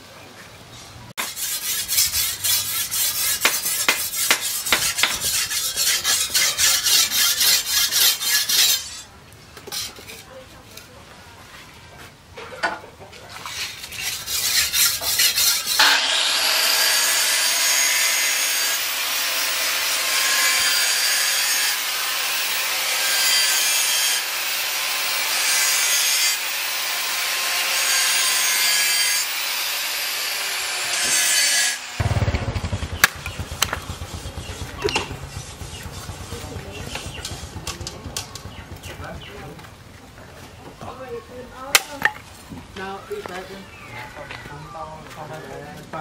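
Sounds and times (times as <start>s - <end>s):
knife grinding on sharpening stone: 1.2s - 10.2s, 13.5s - 15.9s
blade chopping into wood: 3.4s - 5.3s, 33.0s - 35.7s.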